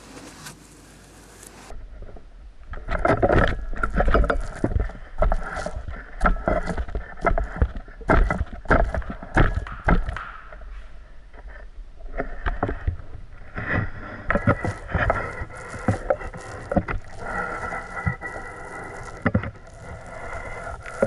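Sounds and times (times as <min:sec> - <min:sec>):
wet paint roller strokes: 0:13.6 - 0:21.0.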